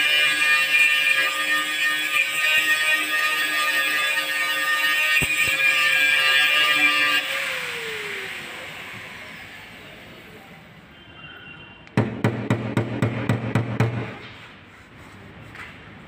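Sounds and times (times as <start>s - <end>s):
power sander whining: 1.7s - 10.3s.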